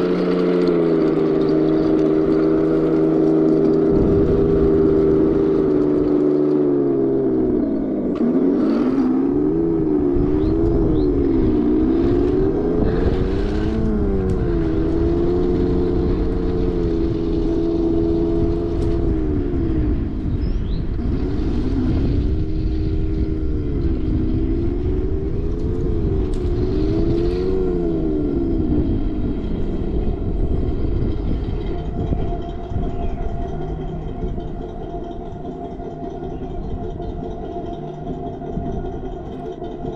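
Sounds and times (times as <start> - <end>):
simulated tank engine noise: 0.0 - 39.9.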